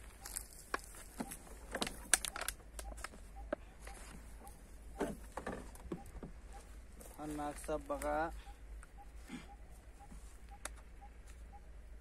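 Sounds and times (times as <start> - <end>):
footsteps crunching through dry leaves: 0.0 - 1.7.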